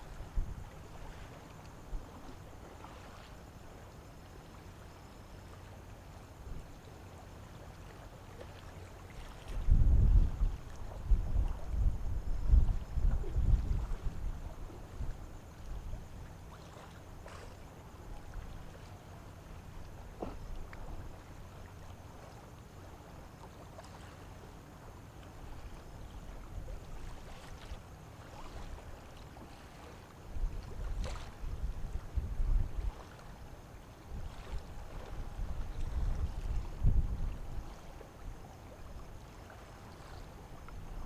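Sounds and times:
wind buffeting microphone: 0:00.0 - 0:01.1, 0:09.5 - 0:16.2, 0:30.3 - 0:33.1, 0:34.1 - 0:37.9
low machinery hum: 0:00.0 - 0:41.0.

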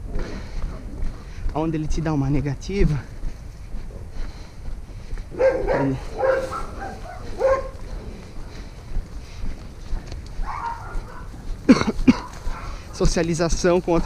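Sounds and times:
dog barking: 0:05.3 - 0:08.1, 0:10.4 - 0:11.5, 0:12.2 - 0:12.8.

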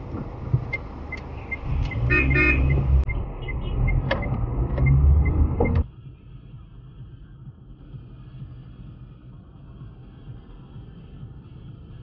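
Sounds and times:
road traffic rumble: 0:00.0 - 0:12.0
car horn blasts: 0:02.0 - 0:03.8.

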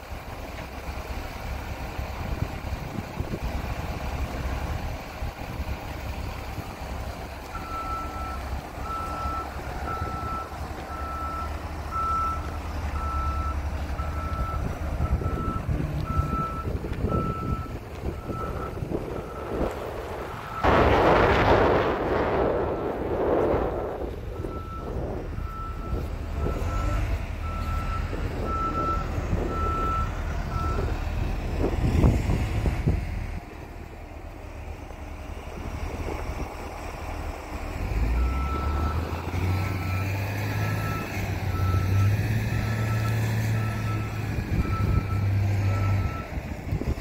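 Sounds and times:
diesel engine running: 0:00.0 - 0:47.0
reversing alarm beeping: 0:07.6 - 0:19.6, 0:24.4 - 0:30.9, 0:38.0 - 0:39.1, 0:39.7 - 0:46.4.

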